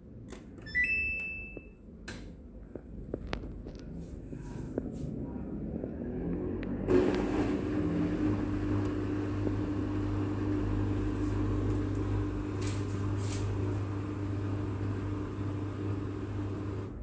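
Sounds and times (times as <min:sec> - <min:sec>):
washing machine humming: 0:00.0 - 0:01.8, 0:06.9 - 0:17.0.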